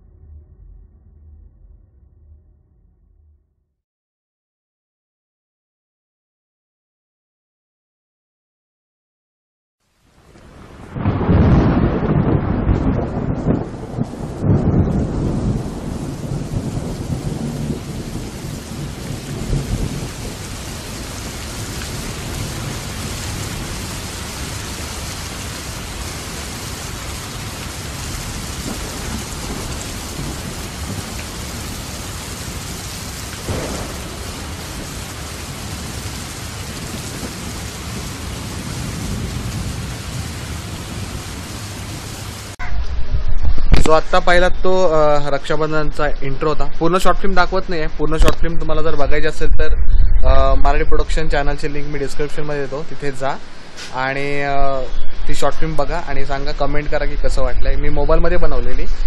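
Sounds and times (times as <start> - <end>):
heavy rain: 9.8 - 42.6, 43.8 - 59.0
thunder rumbling: 10.3 - 45.8, 46.9 - 53.5.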